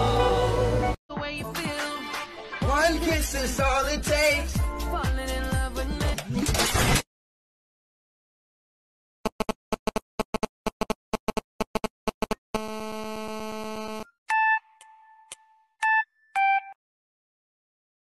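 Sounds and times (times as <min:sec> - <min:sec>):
phone interference pulses: 0:09.3 - 0:14.0.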